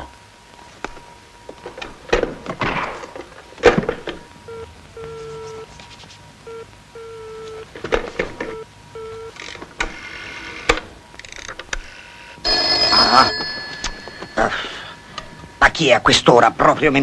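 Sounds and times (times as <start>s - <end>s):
telephone dial tone: 12.5s - 15.5s.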